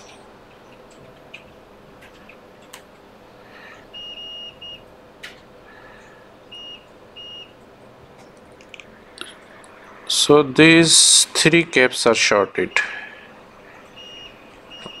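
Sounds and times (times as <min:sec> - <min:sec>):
multimeter continuity beeps: 0:03.9 - 0:04.9, 0:06.5 - 0:07.6, 0:12.6 - 0:13.2, 0:13.9 - 0:15.0.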